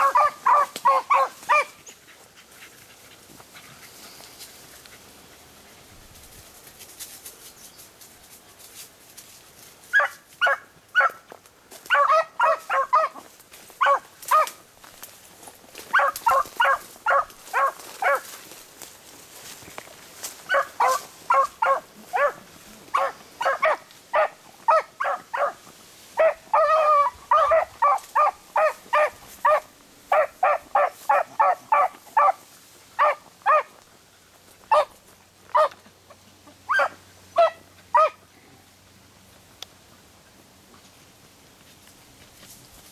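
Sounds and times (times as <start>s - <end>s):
dogs baying: 0.0s - 3.9s, 11.9s - 14.6s, 15.9s - 18.3s, 20.5s - 25.6s, 26.2s - 32.4s.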